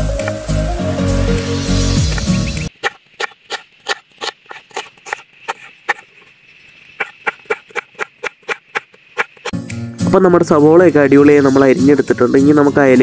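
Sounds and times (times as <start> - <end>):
knife striking wooden board: 2.1 - 6.0, 7.0 - 9.6.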